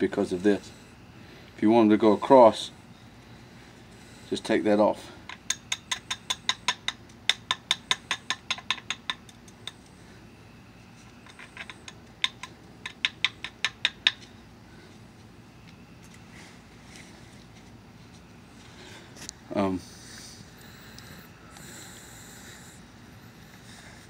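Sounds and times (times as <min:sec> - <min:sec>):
billet tapping flint clinks: 0:05.2 - 0:10.0, 0:11.2 - 0:14.3.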